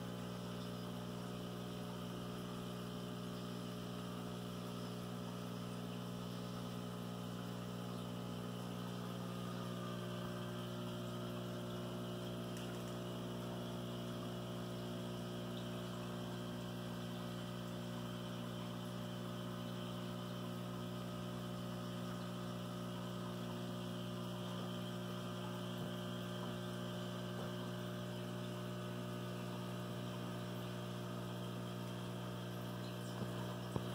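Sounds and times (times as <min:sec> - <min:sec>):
aquarium pump humming: 0:00.0 - 0:33.9.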